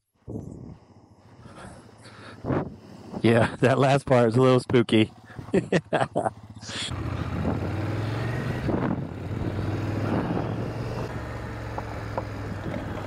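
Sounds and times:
motorcycle engine running: 2.7s - 13.0s.

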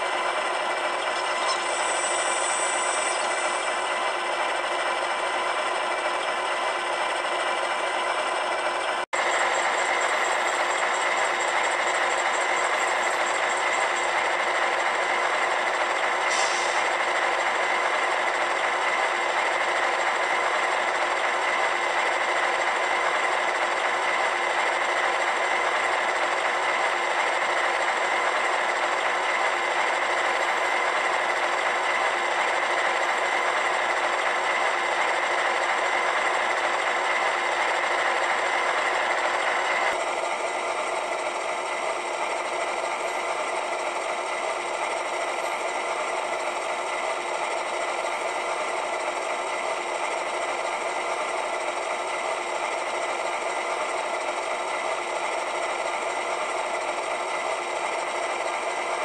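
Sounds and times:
buzzy diesel idle from small speaker: 0.0s - 59.0s.

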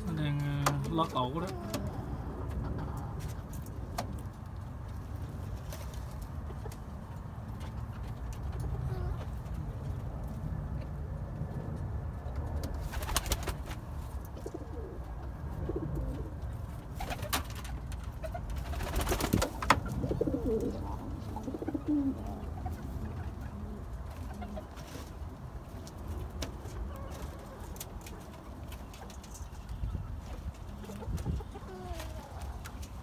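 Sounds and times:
pigeons cooing: 8.6s - 9.4s, 14.3s - 17.4s, 18.3s - 24.8s.

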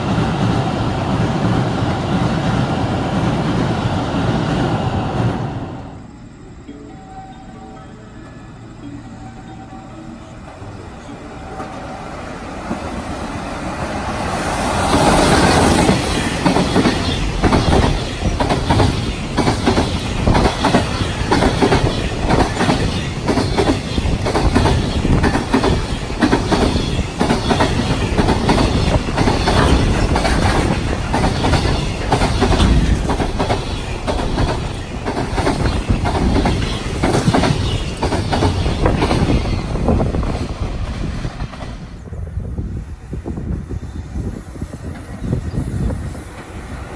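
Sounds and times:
freight train rushing past: 0.0s - 46.9s
wheels clacking over rail joints: 10.2s - 42.0s.

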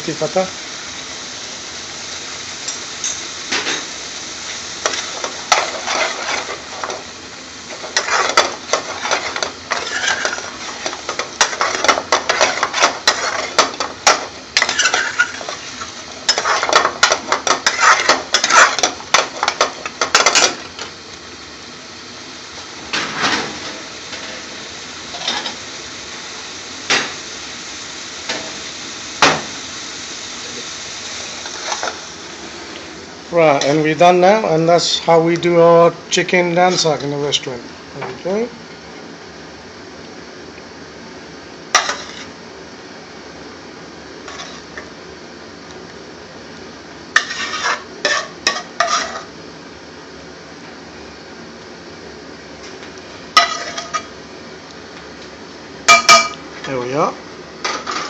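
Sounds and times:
curry sizzling: 0.0s - 58.0s
metal spoon scraping a pan: 7.7s - 20.6s, 41.8s - 42.3s, 44.3s - 44.7s, 47.2s - 49.3s, 53.4s - 54.1s.

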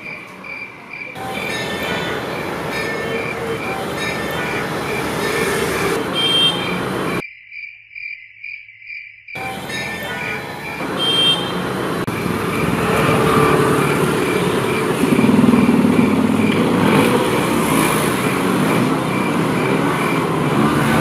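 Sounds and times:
cricket chirping: 0.0s - 5.6s, 6.2s - 11.4s
motorbikes passing: 0.0s - 7.2s, 9.4s - 21.0s.

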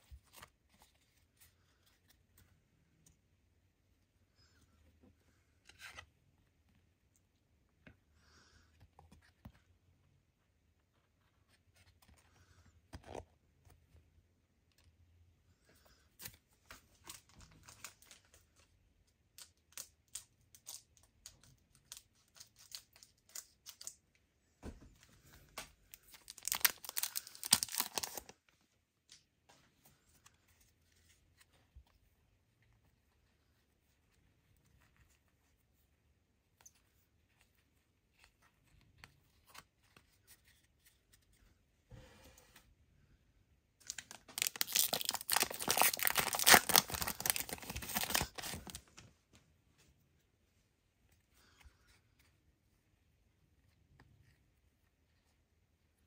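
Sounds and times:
foil pack crinkling: 26.0s - 28.3s, 43.8s - 48.8s.

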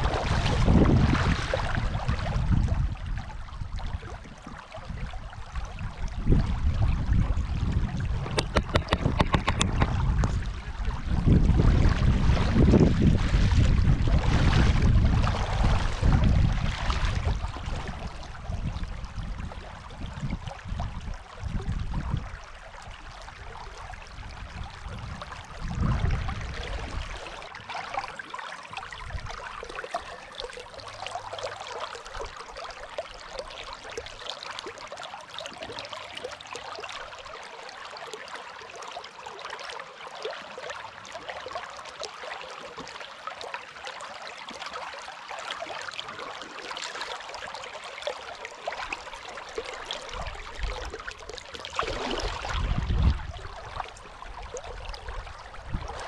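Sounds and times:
river water rushing and splashing: 26.4s - 56.0s.

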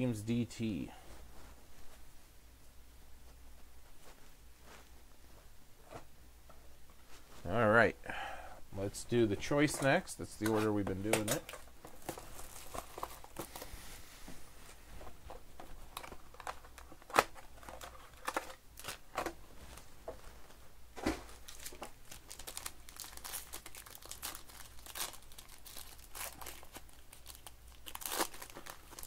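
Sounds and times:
plastic wrapping crinkling and tearing: 9.7s - 13.7s, 15.6s - 19.4s, 21.3s - 29.0s.

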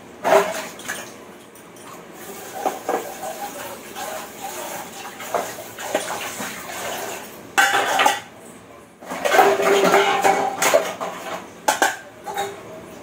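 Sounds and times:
dishes and utensils clattering: 0.2s - 8.3s, 9.0s - 12.9s
tap running: 2.3s - 7.2s.

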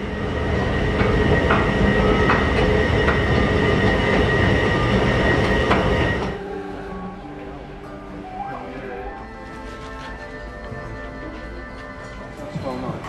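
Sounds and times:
escalator rumble and whine: 0.0s - 9.2s.

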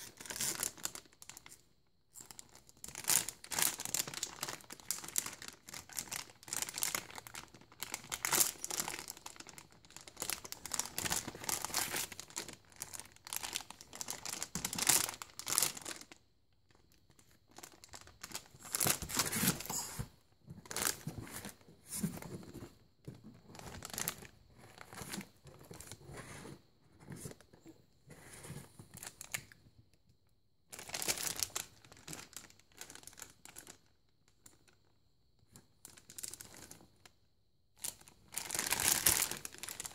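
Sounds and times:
foil bag crinkling: 2.3s - 16.2s, 17.6s - 20.1s, 37.8s - 39.9s.

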